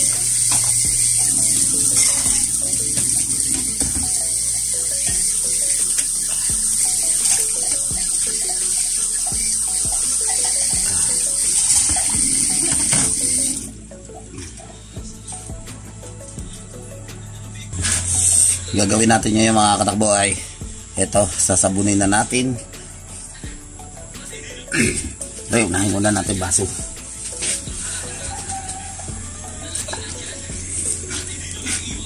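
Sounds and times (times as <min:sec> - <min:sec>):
tap water running into sink: 0:00.0 - 0:13.7
faint background music: 0:00.0 - 0:32.0.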